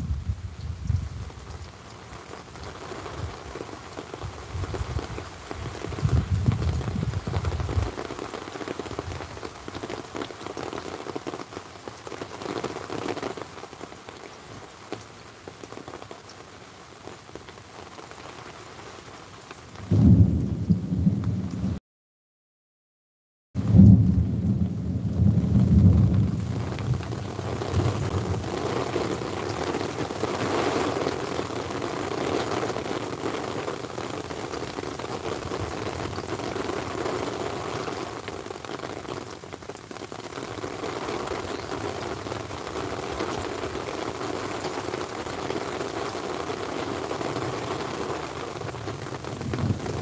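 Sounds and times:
steady falling rain: 0.0s - 21.8s, 23.6s - 50.0s
thunder rumbling: 5.7s - 8.0s, 19.8s - 21.8s, 23.6s - 33.3s, 47.8s - 50.0s.

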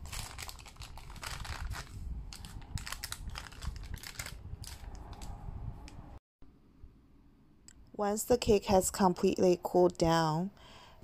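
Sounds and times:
parchment paper crinkling: 0.0s - 5.0s.

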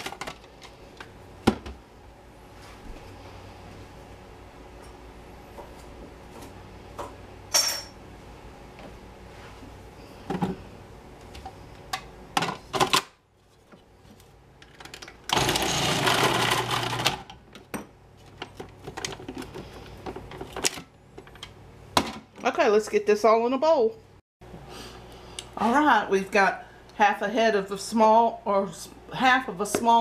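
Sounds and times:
food processor motor shredding: 15.3s - 17.4s.

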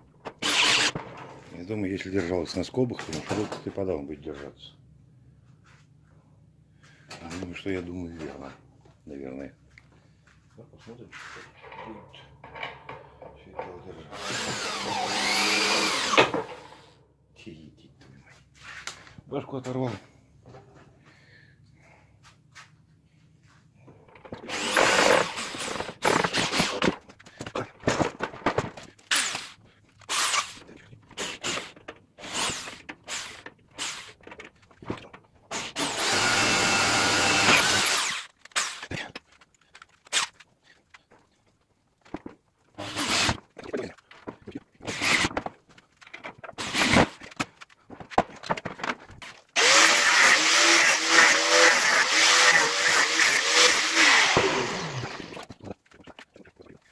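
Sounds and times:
electric drill-driver whining: 0.4s - 1.0s, 14.2s - 16.3s, 24.5s - 26.8s, 35.8s - 38.8s, 49.6s - 55.5s
angle grinder running: 14.2s - 16.3s, 24.5s - 25.7s, 35.8s - 38.2s, 49.6s - 55.4s.

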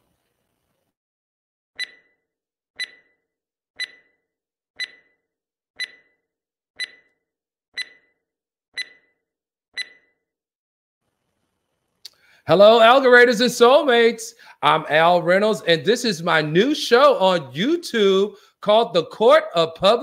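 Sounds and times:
timer ticking: 1.8s - 2.2s, 2.8s - 3.2s, 3.8s - 4.2s, 4.8s - 5.2s, 5.8s - 6.2s, 6.8s - 7.2s, 7.8s - 8.2s, 8.8s - 9.2s, 9.8s - 10.2s.

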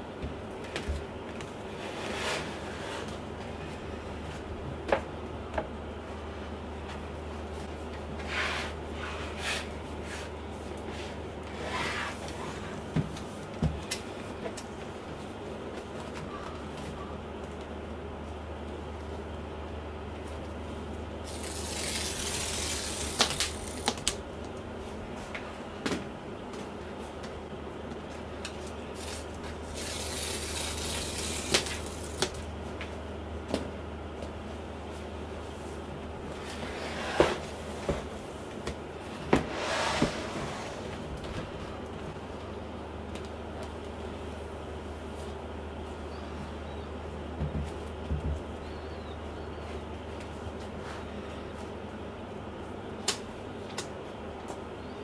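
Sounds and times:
steady low hum: 0.0s - 55.0s
paper packaging tearing and rustling: 21.3s - 24.1s, 29.0s - 32.4s
cardboard box sliding on desk: 36.6s - 37.5s, 39.3s - 41.0s.

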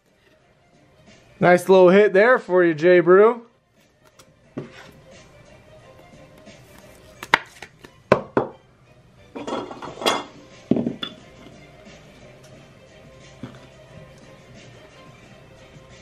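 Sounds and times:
background music: 0.0s - 16.0s
cards tapping on table: 7.0s - 8.5s.

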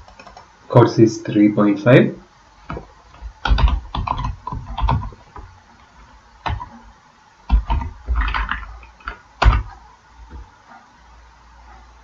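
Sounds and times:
computer keyboard keys clacking: 0.0s - 0.5s, 2.7s - 5.5s, 6.4s - 6.8s, 7.5s - 10.4s.

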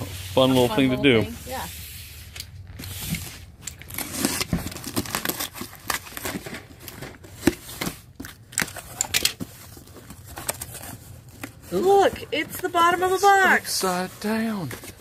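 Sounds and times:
cardboard flaps rustling and scraping: 0.0s - 15.0s
box cutter slitting tape: 2.2s - 9.2s.

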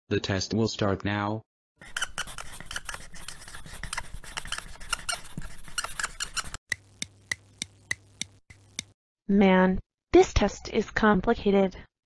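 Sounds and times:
pencil scribbling on paper: 1.8s - 6.6s
sharp clicks: 6.7s - 8.9s.

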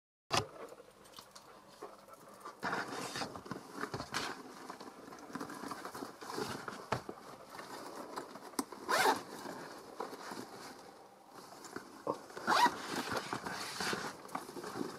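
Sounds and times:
leather rustling: 2.2s - 14.9s
bag zipper opening: 8.8s - 9.6s, 12.4s - 14.2s.

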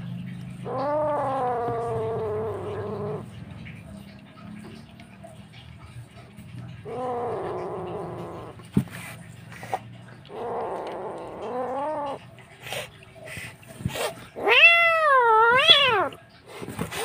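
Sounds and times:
kitten yowling: 0.6s - 3.3s, 6.8s - 8.6s, 10.2s - 12.2s, 14.0s - 16.2s.

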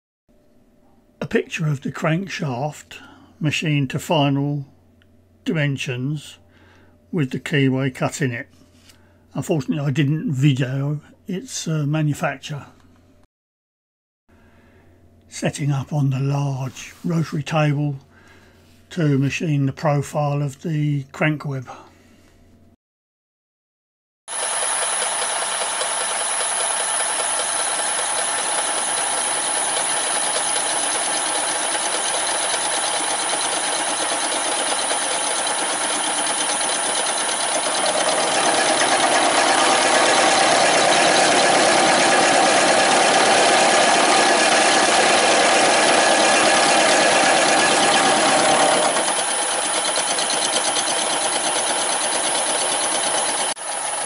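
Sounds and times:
milling machine cutting metal: 24.3s - 54.0s.

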